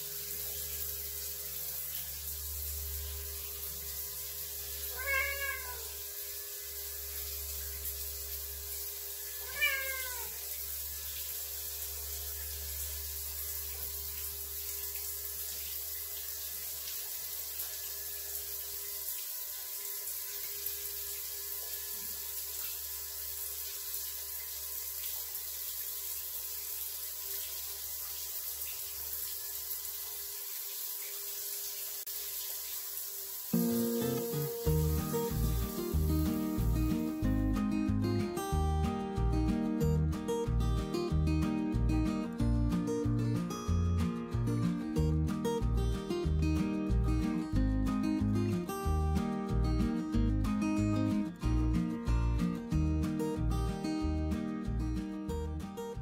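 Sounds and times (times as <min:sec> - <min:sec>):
shower water running: 0:00.0 - 0:56.0
cat meowing: 0:04.9 - 0:06.0, 0:09.4 - 0:10.4.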